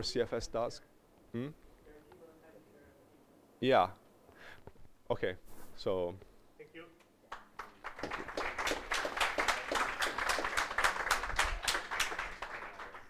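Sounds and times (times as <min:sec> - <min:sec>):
audience applauding: 0:07.3 - 0:13.0.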